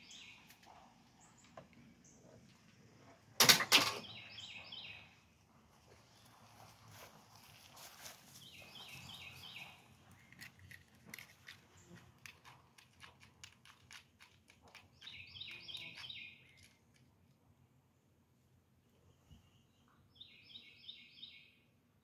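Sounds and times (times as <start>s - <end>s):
bird singing: 0.0s - 2.4s, 3.9s - 5.2s, 8.4s - 10.4s, 15.0s - 16.8s, 19.0s - 21.7s
footsteps through grass and leaves: 6.0s - 9.6s.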